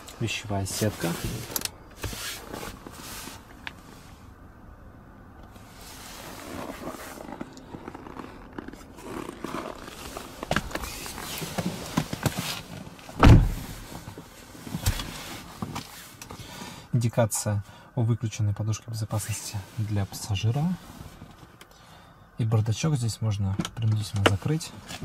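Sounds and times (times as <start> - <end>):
car trim parts scraping: 0.0 - 4.1, 5.5 - 16.4
heavy low thump: 13.2 - 13.8.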